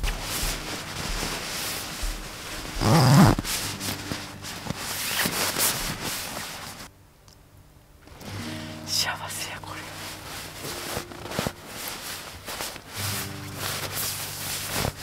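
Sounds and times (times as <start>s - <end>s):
sleeping bag rustling: 0.0s - 6.9s, 9.7s - 15.0s.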